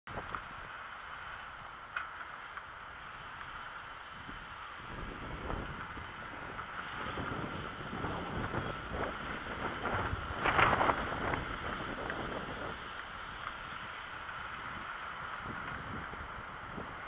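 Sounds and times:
wind buffeting microphone: 4.0 - 17.0.

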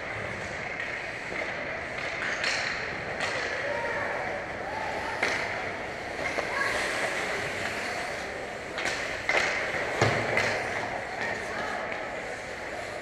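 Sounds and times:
skates scraping ice: 0.0 - 13.0
hockey stick hitting puck: 0.7 - 3.8, 5.0 - 8.0, 8.6 - 12.0.

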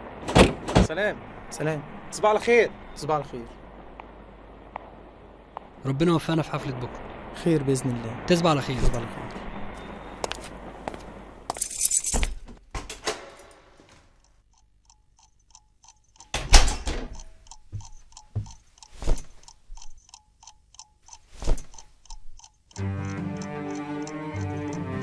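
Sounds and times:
clock ticking: 14.2 - 25.0
low bowed strings: 22.8 - 25.0.

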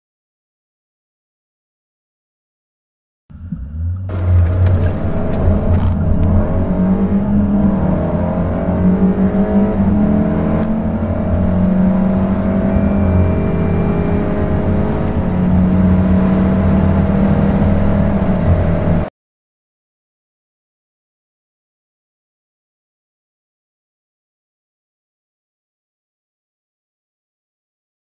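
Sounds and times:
car engine accelerating: 3.3 - 19.1.

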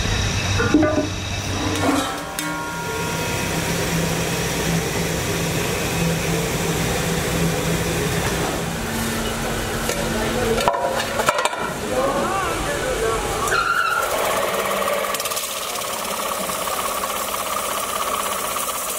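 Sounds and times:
machinery hum: 0.0 - 18.9.

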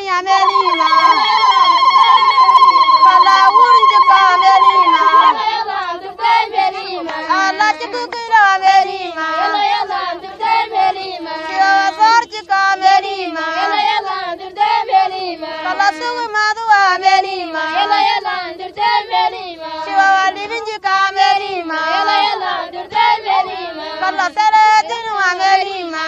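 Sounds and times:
high-pitched voice singing: 0.0 - 5.5.

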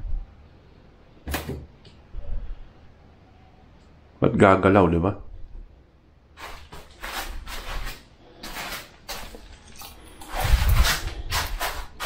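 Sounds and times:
handling rustles clicks and knocks: 6.4 - 12.0.

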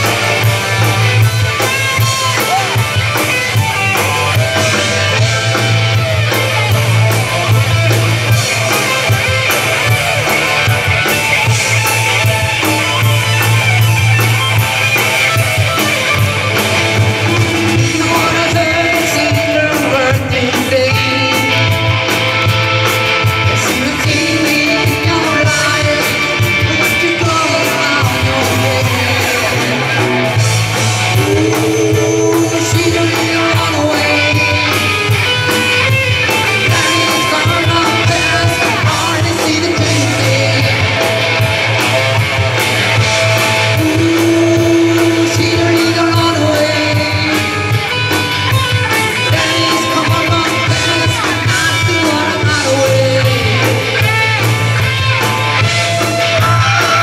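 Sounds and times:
live rock band playing: 0.0 - 57.0
person singing long notes: 30.9 - 34.9, 43.6 - 47.6.

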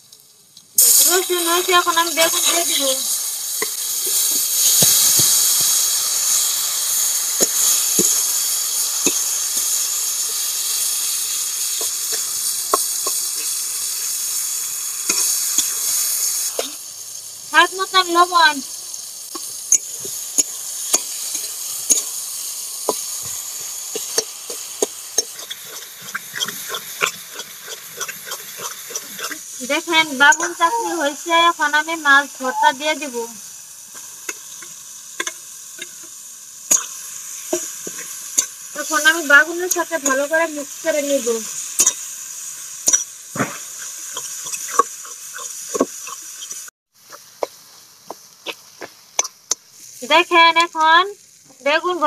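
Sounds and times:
oil sizzling: 0.0 - 52.0
metal spatula scraping a pan: 23.9 - 29.4, 42.8 - 47.6.

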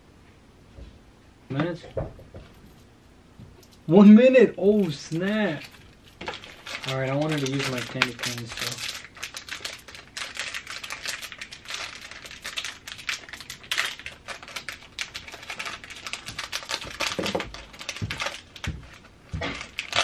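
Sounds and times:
plastic wrapper crinkling: 4.6 - 20.0.

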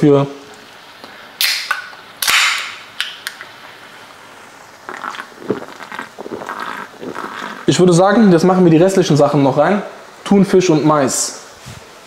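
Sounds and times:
can ring-pull cracking open: 1.4 - 3.4
fizzing hiss of carbonation: 3.6 - 12.0.

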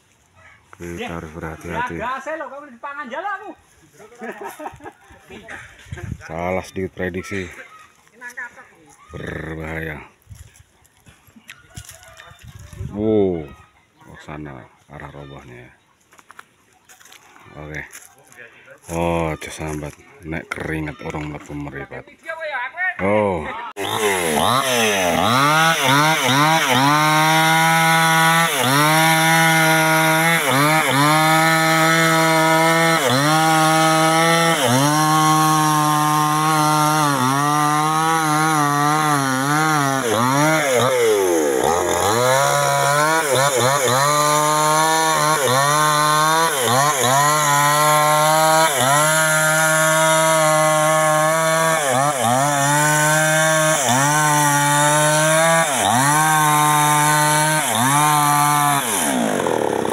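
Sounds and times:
chainsaw cutting wood: 23.8 - 59.9.

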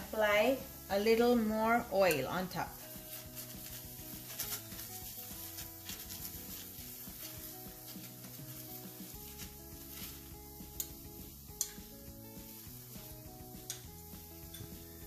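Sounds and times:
oil sizzling on a griddle: 0.0 - 15.0
soft background music: 0.0 - 15.0
spoon scraping: 2.1 - 12.5.

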